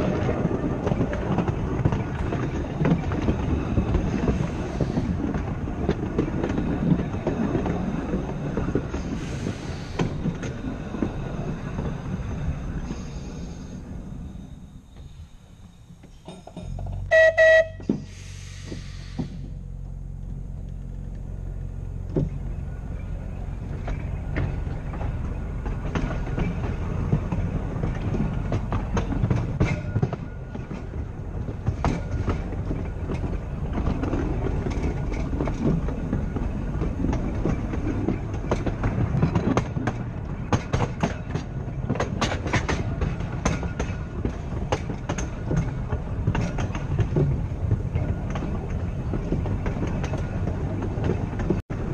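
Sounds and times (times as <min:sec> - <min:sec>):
wheels clicking over rail joints: 0:00.0 - 0:13.0, 0:15.9 - 0:51.9
tram motors humming: 0:00.0 - 0:51.9
tram rattling clatter: 0:00.0 - 0:51.9.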